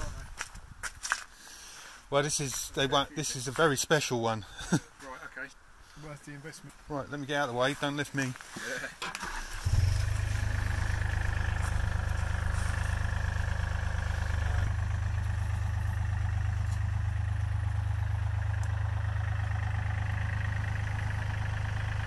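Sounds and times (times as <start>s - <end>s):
diesel engine starting and idling: 9.0s - 22.0s.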